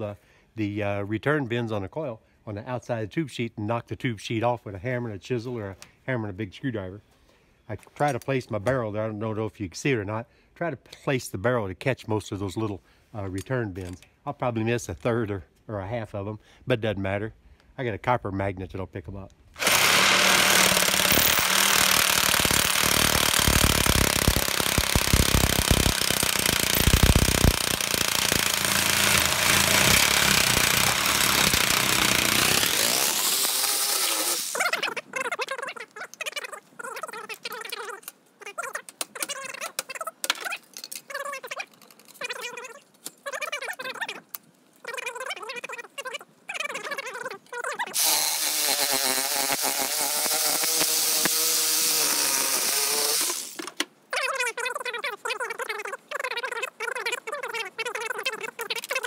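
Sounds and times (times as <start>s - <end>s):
reciprocating saw cutting metal: 19.6s - 34.8s, 48.0s - 53.6s.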